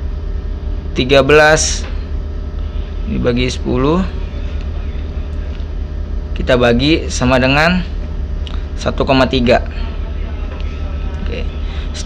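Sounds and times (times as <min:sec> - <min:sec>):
ship engine low rumble: 0:00.0 - 0:12.0.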